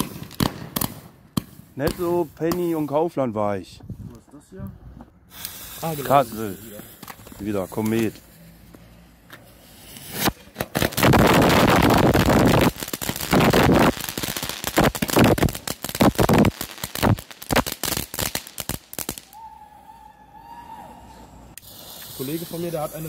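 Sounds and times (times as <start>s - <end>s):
firework fountain crackling: 5.3s - 8.5s, 9.4s - 19.4s, 21.5s - 23.0s.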